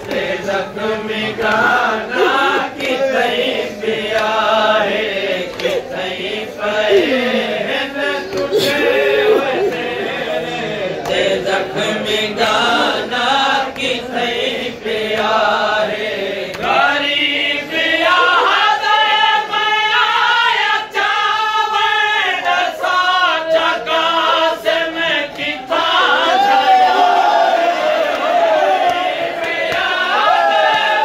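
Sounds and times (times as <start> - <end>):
lead reciter singing: 0.0 - 31.0
men chanting a lament: 0.0 - 31.0.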